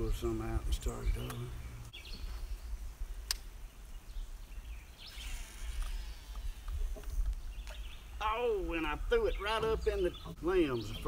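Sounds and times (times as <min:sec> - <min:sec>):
fishing line whirring off reel: 0:05.0 - 0:07.3.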